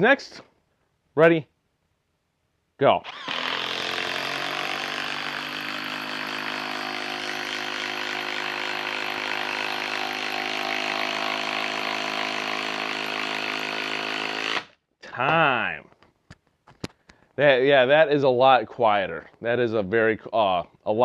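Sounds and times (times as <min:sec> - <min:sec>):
impact driver hammering screw: 0:03.1 - 0:14.7.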